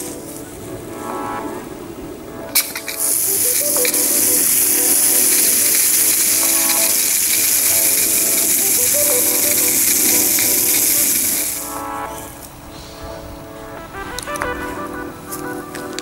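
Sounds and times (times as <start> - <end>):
background music: 0.0 - 16.0
water spraying hiss: 2.6 - 12.3.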